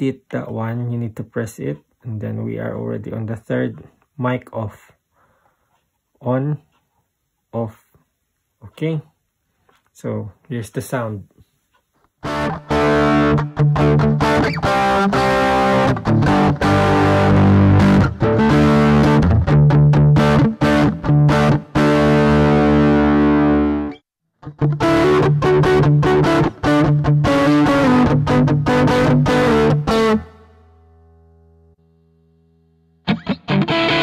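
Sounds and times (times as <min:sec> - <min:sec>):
distorted electric guitar chords: 0:12.2 - 0:34.0.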